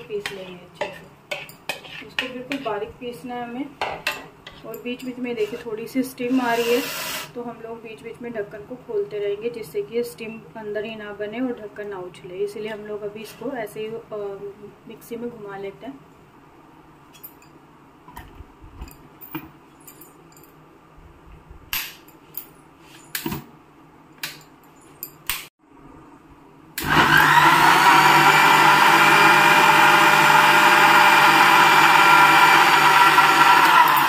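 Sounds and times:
mixer grinder motor grinding: 26.8 - 34.0.

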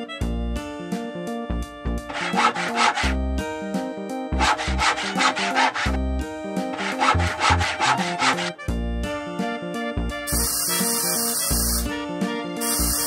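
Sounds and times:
cheerful background music: 0.0 - 13.0
quick back-and-forth sawing: 2.1 - 3.2, 4.3 - 6.0, 6.6 - 8.7, 10.3 - 11.6.

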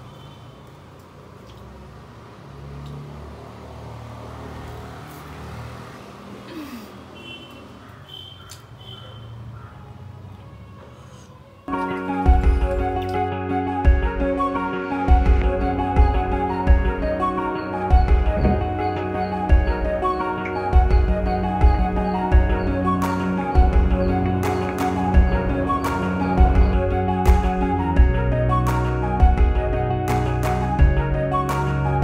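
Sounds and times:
instrumental background music: 11.7 - 32.0
road vehicle engine rumble: 15.1 - 28.6.

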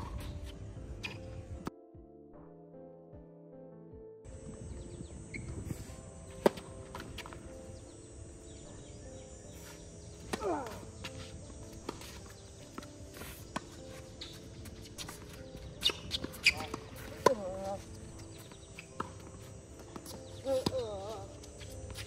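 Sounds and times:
footsteps on hard court: 5.3 - 7.6, 9.5 - 22.0
tennis ball bouncing: 6.4 - 7.4, 9.6 - 22.0
tennis racket hitting ball: 15.8 - 17.7.

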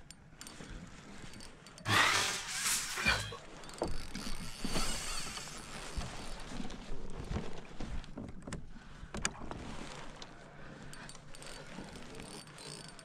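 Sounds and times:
clicks and knocks from kayak gear: 5.8 - 13.0.

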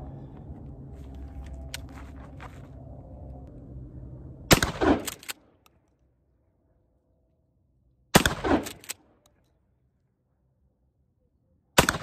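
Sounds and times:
shotgun blasts: 4.5 - 5.4, 8.1 - 8.9, 11.8 - 12.0.

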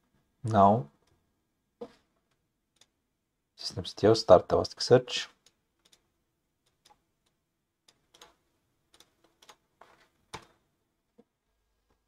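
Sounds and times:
mouse and keyboard clicks: 5.3 - 7.0, 7.8 - 10.6.

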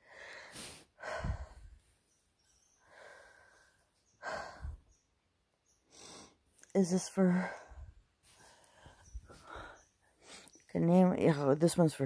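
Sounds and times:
person breathing out heavily: 0.0 - 1.8, 2.8 - 4.8.

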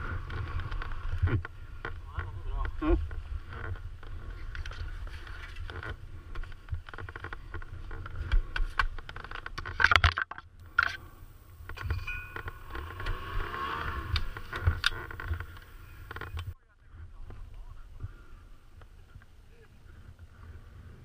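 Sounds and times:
low steady rumble: 10.5 - 21.0.

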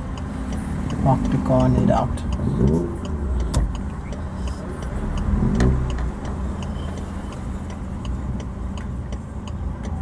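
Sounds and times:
turn signal ticking: 0.0 - 10.0.

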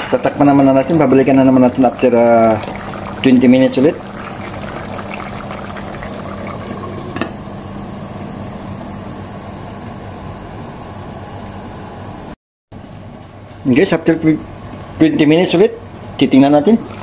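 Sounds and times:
food bubbling in a pot: 0.8 - 7.4.

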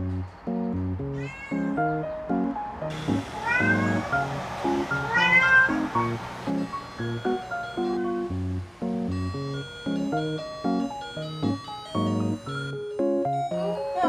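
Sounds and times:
light music with plucked notes: 0.0 - 14.0
cat meowing: 1.1 - 2.0, 3.0 - 6.2.

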